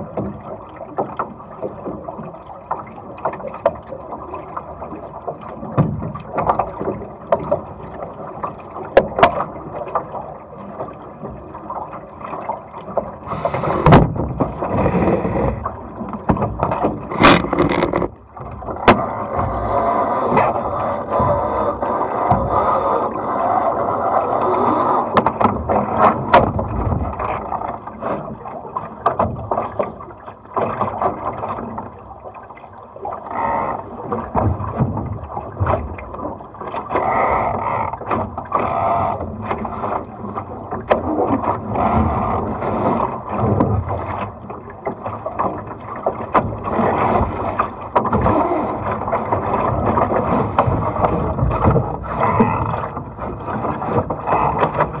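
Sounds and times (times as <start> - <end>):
water rushing along boat hull: 0.0 - 55.0
short knocks and clicks: 16.1 - 19.1.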